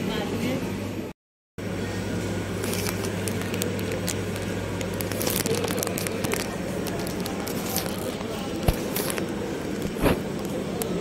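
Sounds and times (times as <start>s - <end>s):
steady low hum: 0.2s - 11.0s
small clicks and crackles: 2.6s - 11.0s.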